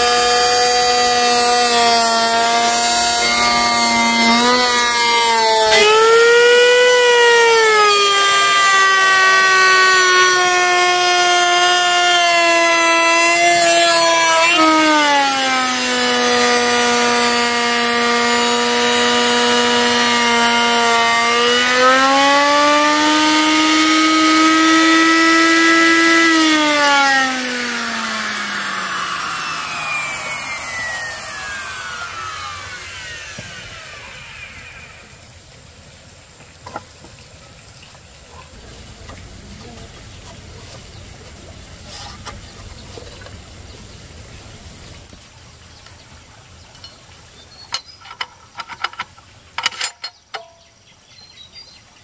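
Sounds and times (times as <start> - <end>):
motor whining: 0.0 - 35.6.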